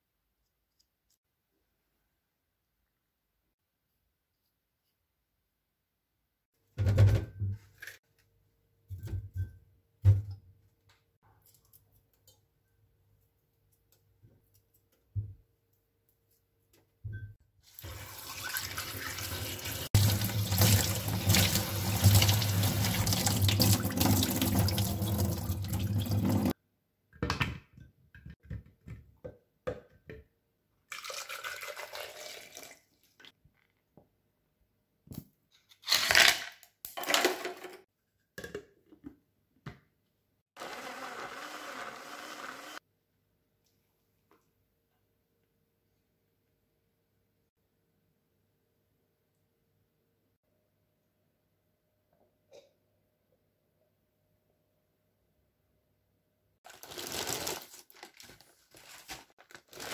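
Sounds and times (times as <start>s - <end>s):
tap water running into sink: 17.8s - 26.5s
blender running: 40.6s - 42.8s.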